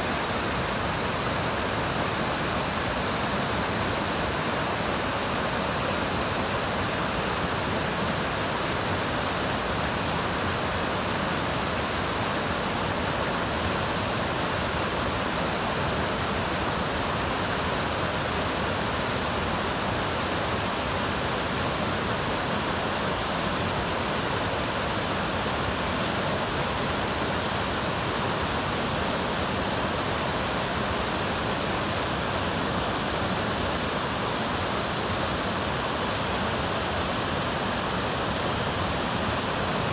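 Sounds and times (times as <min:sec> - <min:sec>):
river rapids rushing: 0:00.0 - 0:39.9.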